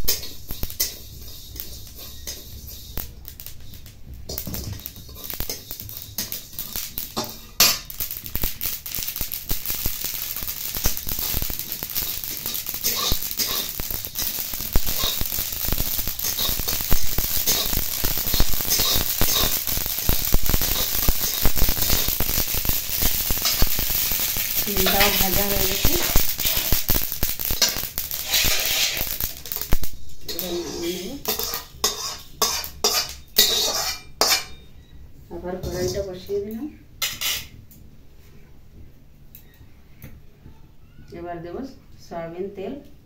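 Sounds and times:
seeds popping in a pan: 0.0s - 34.6s
spatula scraping iron pan: 0.1s - 3.1s, 12.4s - 16.9s, 27.6s - 29.1s, 30.3s - 34.6s, 37.0s - 37.5s.

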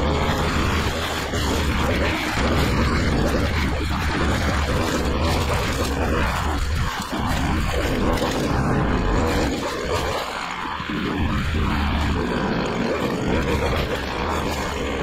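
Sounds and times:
lawn machinery engine running: 0.0s - 15.0s.

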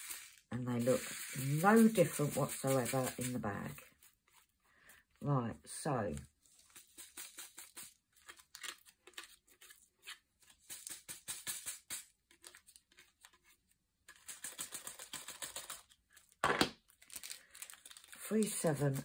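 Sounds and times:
small beads rattling on plastic tray: 0.0s - 2.4s, 14.1s - 16.0s, 16.9s - 18.6s.

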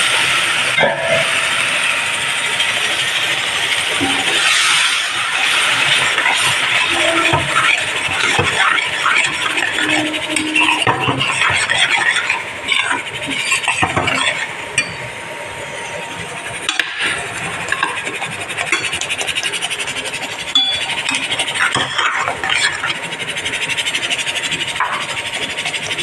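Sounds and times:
frying sizzle: 0.0s - 15.7s, 16.3s - 26.0s
metal spoon scraping pan: 6.0s - 14.4s.

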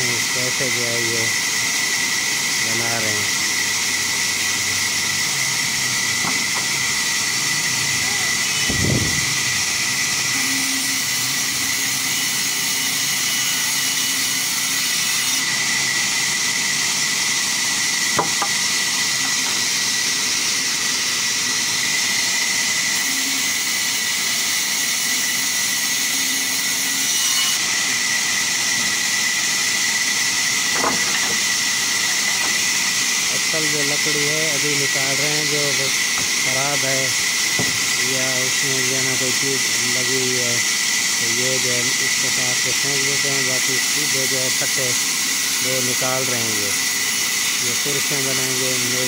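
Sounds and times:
sharp knocks: 18.2s - 18.6s
band saw ripping wood: 30.6s - 31.6s.

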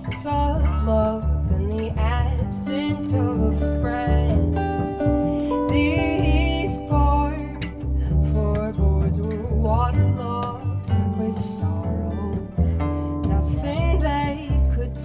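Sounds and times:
low bass notes: 0.0s - 15.0s
person singing: 0.0s - 15.0s
plucked guitar: 0.0s - 15.0s.

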